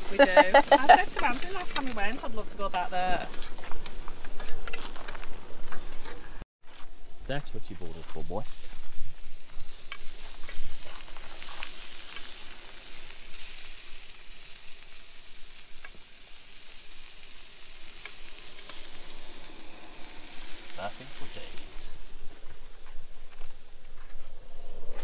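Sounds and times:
meat sizzling in a pan: 6.7s - 24.2s.

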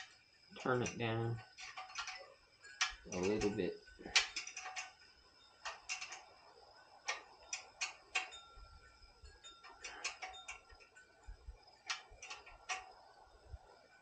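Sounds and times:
faint metallic clicks and taps: 0.0s - 6.3s, 9.3s - 13.0s.

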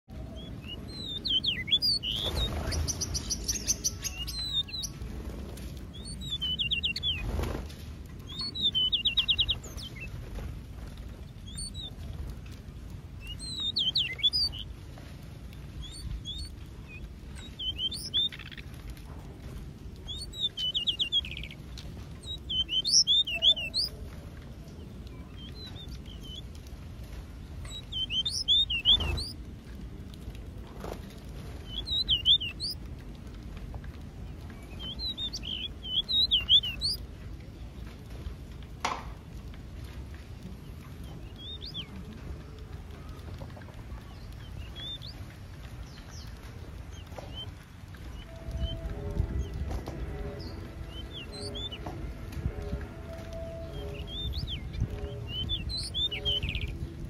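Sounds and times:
finches chirping: 0.3s - 5.0s, 5.9s - 7.6s, 8.2s - 10.1s, 11.4s - 12.0s, 13.2s - 14.7s, 15.8s - 18.7s, 20.0s - 21.6s, 22.2s - 23.9s, 27.6s - 29.4s, 31.6s - 32.8s, 34.6s - 37.0s, 41.2s - 41.9s, 44.2s - 45.2s, 46.9s - 47.5s, 48.1s - 52.0s, 53.2s - 56.8s
buzzy finch trills: 0.4s - 5.0s, 5.9s - 7.6s, 8.3s - 10.1s, 11.4s - 12.0s, 13.2s - 14.7s, 15.8s - 18.6s, 20.1s - 21.6s, 22.2s - 23.9s, 27.7s - 29.4s, 31.6s - 32.8s, 34.7s - 37.0s, 41.2s - 41.9s, 44.2s - 45.2s, 48.1s - 51.9s, 52.7s - 56.8s.

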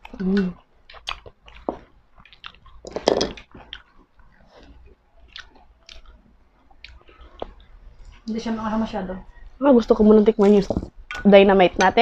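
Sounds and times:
chewing and crunching: 0.0s - 8.3s.

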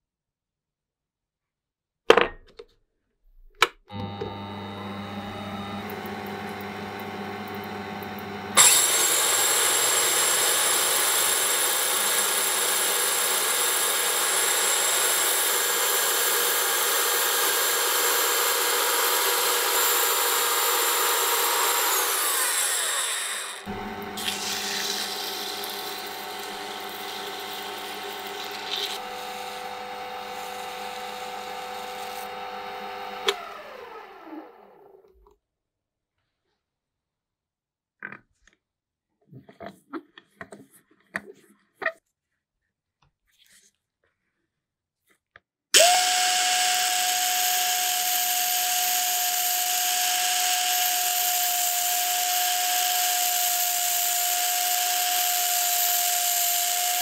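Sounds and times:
lathe running: 3.9s - 34.8s, 45.8s - 57.0s
belt file grinding metal: 8.6s - 16.5s, 17.4s - 29.0s.

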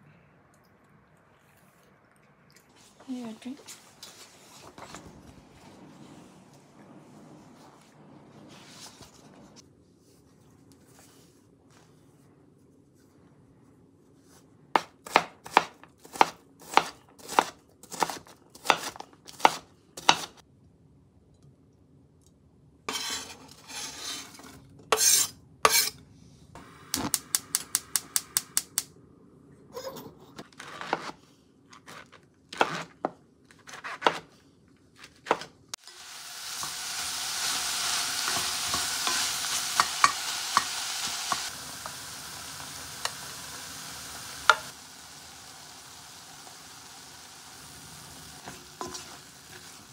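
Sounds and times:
knife chopping on cutting board: 14.8s - 20.4s
knife scraping on board: 22.9s - 26.0s
food sizzling in a pot: 35.8s - 49.9s.

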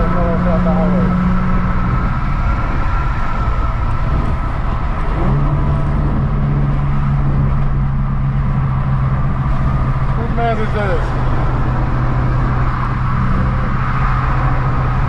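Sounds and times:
car engine droning while driving: 0.0s - 15.0s.

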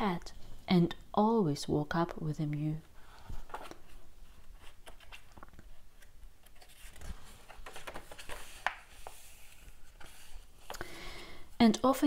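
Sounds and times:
page rustling: 3.3s - 10.8s.

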